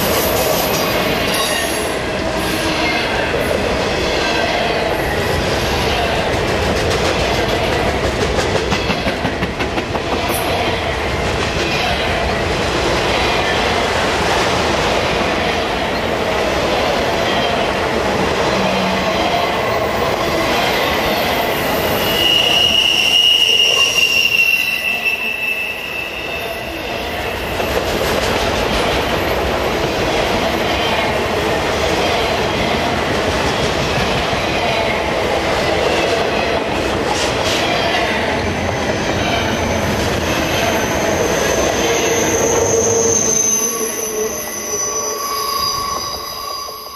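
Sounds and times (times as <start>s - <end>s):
train wheels rumbling on rails: 0.0s - 24.6s, 26.2s - 46.9s
high wheel squeal: 20.6s - 27.6s, 38.8s - 46.9s.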